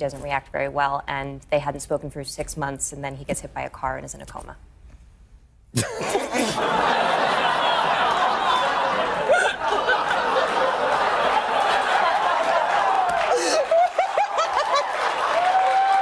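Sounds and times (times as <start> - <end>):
men laughing: 5.8 - 15.9
studio audience laughing: 6.0 - 15.9.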